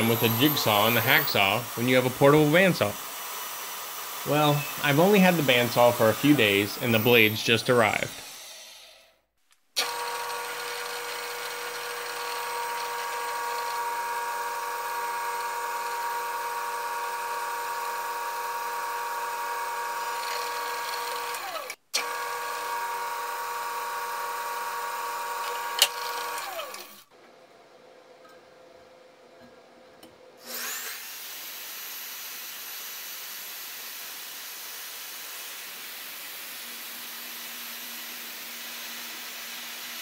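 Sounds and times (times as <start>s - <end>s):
drill press motor whine: 0.0s - 9.0s, 9.8s - 27.0s.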